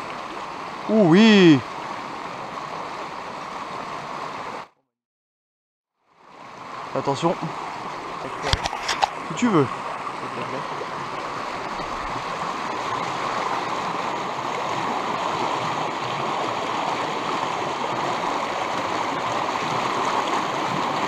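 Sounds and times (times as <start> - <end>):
river rushing over a weir: 0.0 - 4.7, 6.2 - 21.0.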